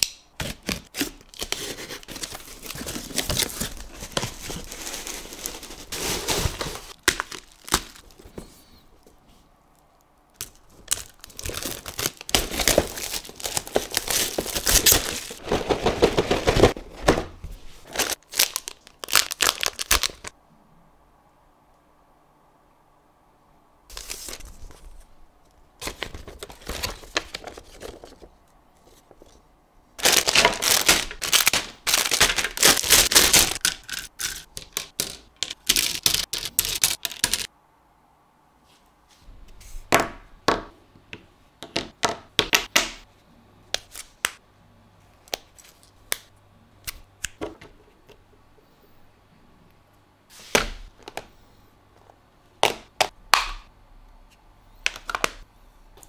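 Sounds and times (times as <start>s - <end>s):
plastic packaging crinkling: 0.5s - 8.4s, 10.4s - 16.8s, 17.8s - 20.3s, 25.8s - 29.4s, 30.0s - 37.5s
plastic pieces clicking and tapping: 33.5s - 37.5s.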